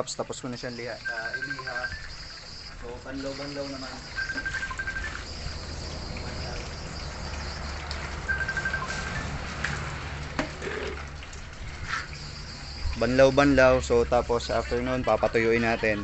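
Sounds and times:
tap water running into basin: 0:00.0 - 0:16.0
bird chirping trills: 0:00.6 - 0:09.3, 0:12.1 - 0:13.6
water splashing poured from dipper: 0:00.6 - 0:13.3.

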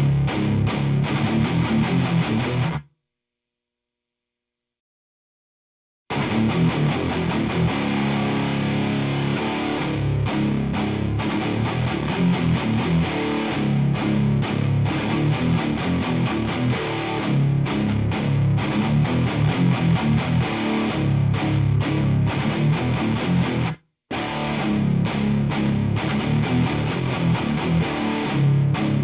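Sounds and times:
distorted electric guitar riffs: 0:00.0 - 0:02.9, 0:06.1 - 0:29.0.

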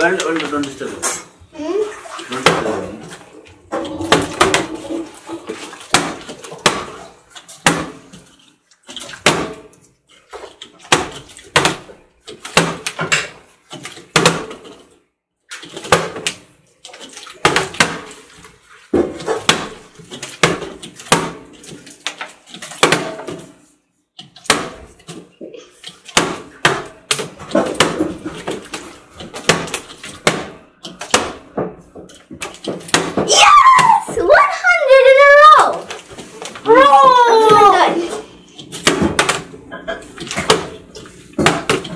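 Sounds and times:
water sloshing in bottle: 0:00.0 - 0:41.9
water bottles knocking on glass: 0:03.7 - 0:05.1.

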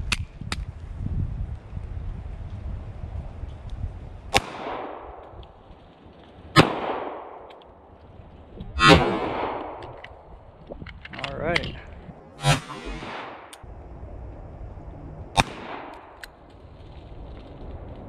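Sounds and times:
pistol shots with echo: 0:06.6 - 0:07.4.

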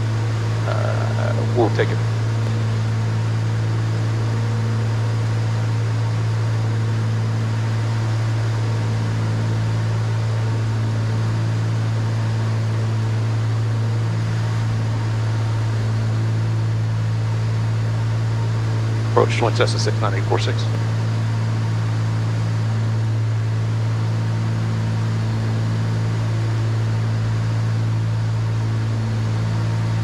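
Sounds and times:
airplane cabin engine drone: 0:00.0 - 0:30.0.

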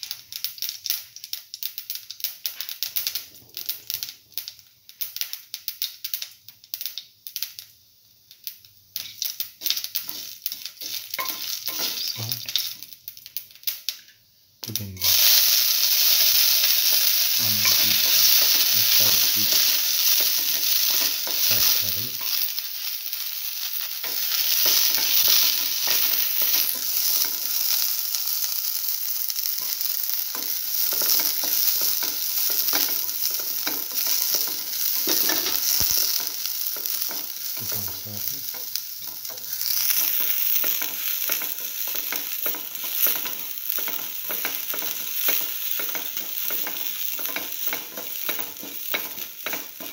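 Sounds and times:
shallots sizzling in hot oil: 0:00.0 - 0:49.9
spatula scraping and tapping pan: 0:09.0 - 0:12.8, 0:16.2 - 0:22.5, 0:24.0 - 0:28.0, 0:29.6 - 0:49.9.

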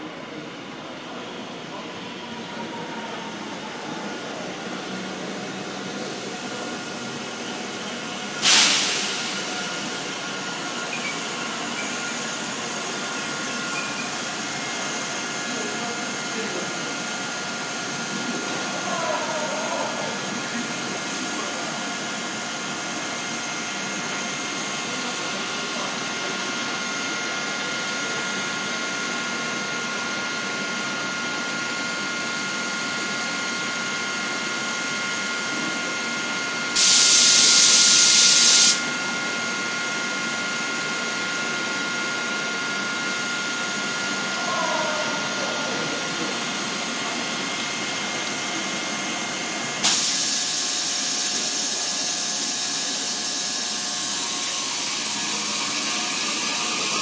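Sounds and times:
air hiss: 0:08.4 - 0:12.2, 0:36.8 - 0:38.8, 0:49.8 - 0:51.2.

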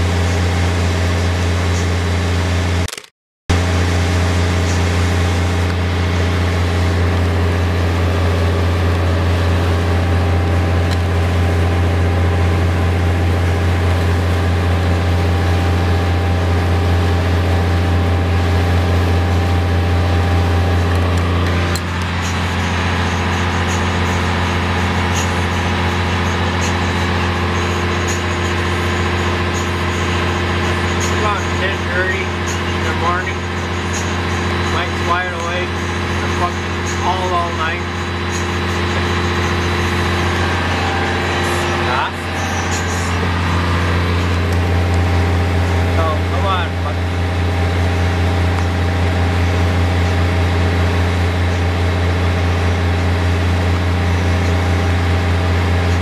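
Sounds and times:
boat engine droning: 0:00.0 - 0:56.0.

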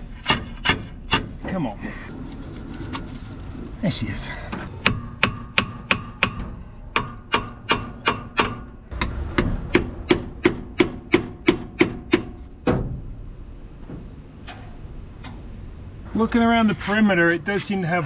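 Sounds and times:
hammer tapping on metal: 0:04.8 - 0:12.4.

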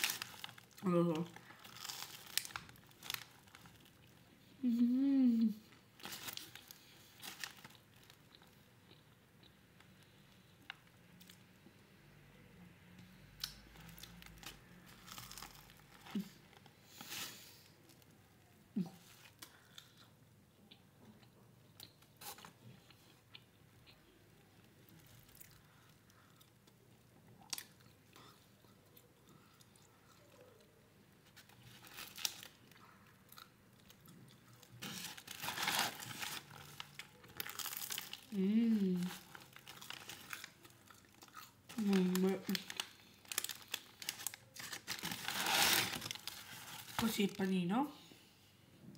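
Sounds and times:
paper wrapper crinkling: 0:00.0 - 0:04.1, 0:06.0 - 0:08.3, 0:13.9 - 0:18.0, 0:31.2 - 0:32.7, 0:34.6 - 0:47.5
chewing sandwich: 0:12.8 - 0:18.2, 0:18.8 - 0:42.0.

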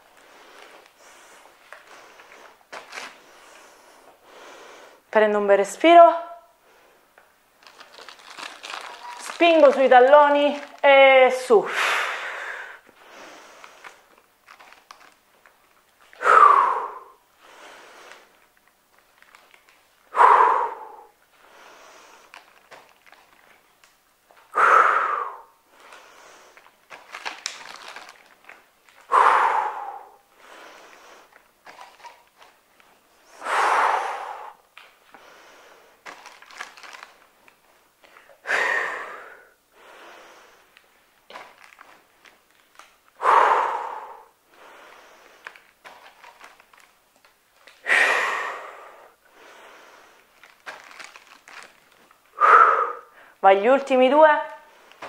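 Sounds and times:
faint clicks and rustles: 0:00.0 - 0:04.2, 0:06.8 - 0:11.3, 0:12.8 - 0:16.2, 0:17.4 - 0:20.1, 0:21.3 - 0:24.5, 0:25.7 - 0:29.1, 0:30.4 - 0:33.3, 0:34.7 - 0:38.4, 0:40.0 - 0:43.2, 0:44.5 - 0:47.9, 0:49.4 - 0:52.3, 0:54.6 - 0:55.0
quiet inhales: 0:00.2 - 0:05.1, 0:11.7 - 0:14.1, 0:16.2 - 0:18.4, 0:20.1 - 0:22.6, 0:24.5 - 0:27.2, 0:29.0 - 0:31.5, 0:33.2 - 0:36.1, 0:38.0 - 0:40.9, 0:43.2 - 0:46.5, 0:47.8 - 0:51.3, 0:52.3 - 0:53.4
woman exhaling forcefully: 0:11.6 - 0:12.8, 0:16.2 - 0:17.2, 0:20.1 - 0:21.2, 0:24.5 - 0:25.6, 0:29.1 - 0:30.2, 0:33.4 - 0:34.6, 0:38.4 - 0:39.6, 0:43.2 - 0:44.3, 0:47.8 - 0:49.2, 0:52.4 - 0:53.4
woman breathing hard: 0:11.7 - 0:14.1, 0:16.1 - 0:18.4, 0:20.0 - 0:22.6, 0:24.4 - 0:28.1, 0:29.0 - 0:31.4, 0:33.2 - 0:37.1, 0:38.0 - 0:40.8, 0:43.1 - 0:46.5, 0:47.8 - 0:51.7, 0:52.3 - 0:53.4.

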